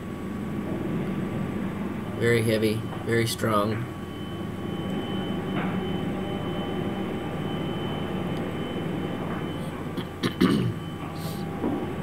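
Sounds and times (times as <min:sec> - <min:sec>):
high whine: 0:00.0 - 0:12.0
low machinery drone: 0:00.0 - 0:12.0.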